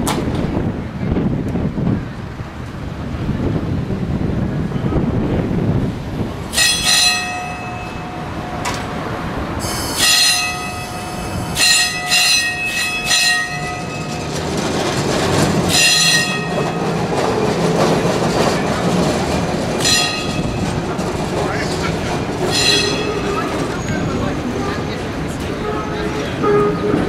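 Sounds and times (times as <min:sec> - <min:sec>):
tram rumbling along track: 0:00.0 - 0:27.0
tram wheels squealing on rails: 0:06.5 - 0:27.0.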